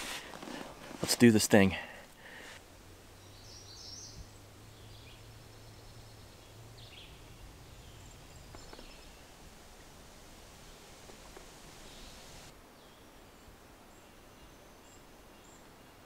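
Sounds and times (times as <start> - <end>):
faint bird chirps: 3.2 - 9.4.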